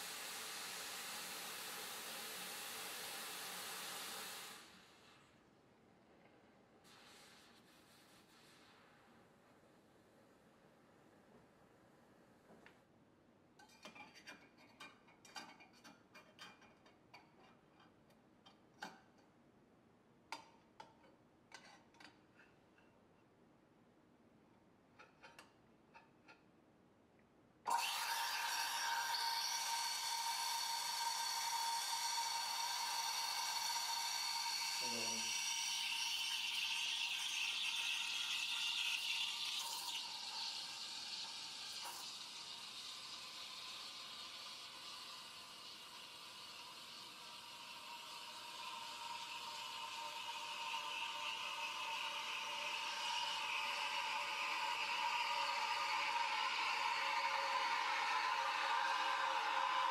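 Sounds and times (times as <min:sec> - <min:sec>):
steam wand hissing: 0:00.0 - 0:05.2, 0:27.7 - 0:59.9.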